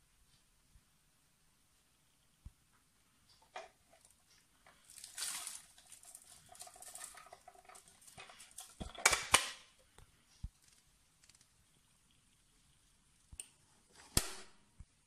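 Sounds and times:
debris rattling into trash can: 0:04.9 - 0:09.0.

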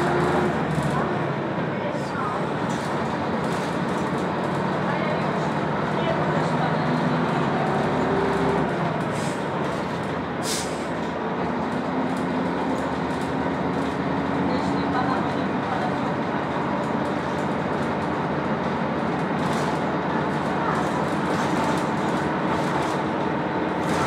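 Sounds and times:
bus diesel engine running: 0:00.0 - 0:24.0
road and body rumble: 0:00.0 - 0:24.0.

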